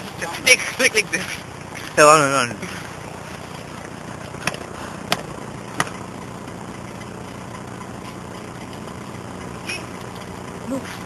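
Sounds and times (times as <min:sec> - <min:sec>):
low engine-like hum: 0:00.0 - 0:11.0.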